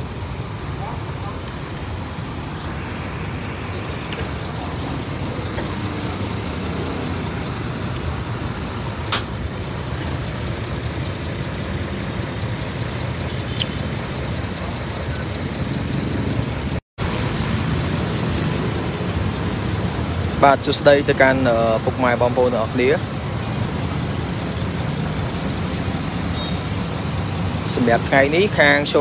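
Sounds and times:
idling engines rumbling: 0.0 - 29.0
street traffic: 0.0 - 29.0
sharp click: 9.1 - 9.4, 13.5 - 13.8.

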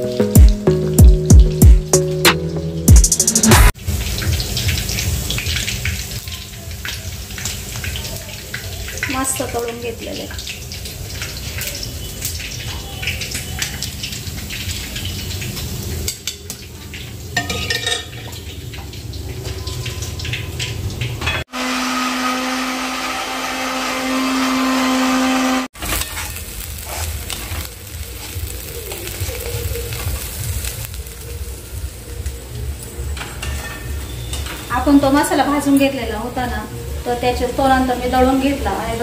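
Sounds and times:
spices frying in a pan: 3.8 - 21.5, 25.7 - 39.0
utensils clinking: 17.4 - 18.4
electric mixer grinder running: 21.5 - 25.7.

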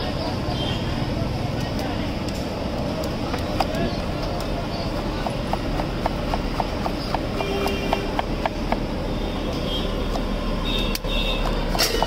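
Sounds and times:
knife chopping on wooden board: 4.8 - 8.9, 11.0 - 12.0.

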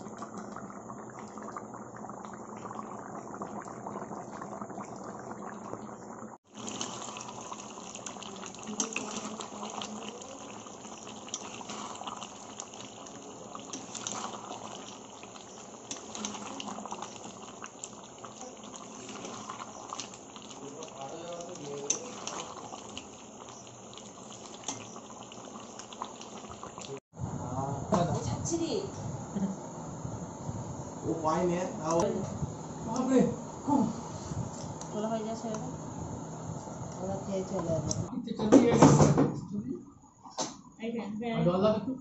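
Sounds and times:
curry bubbling and sizzling in pan: 0.0 - 27.1.

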